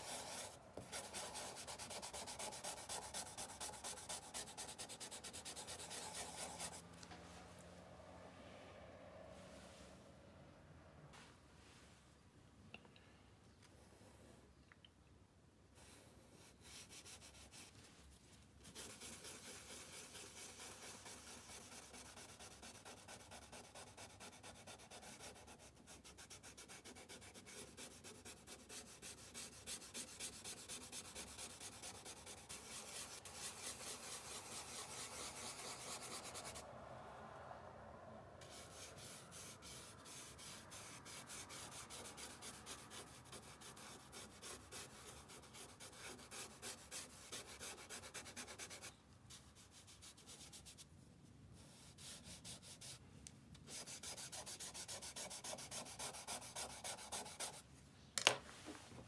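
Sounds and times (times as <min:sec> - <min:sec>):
paintbrush scrubbing on paper: 0:00.0 - 0:06.9, 0:15.8 - 0:36.6, 0:38.4 - 0:50.8, 0:53.7 - 0:57.6.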